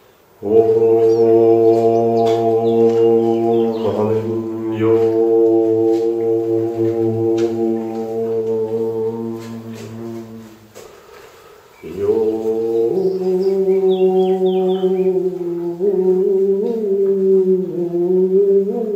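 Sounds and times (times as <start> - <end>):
man chanting low note: 0.4 - 10.4.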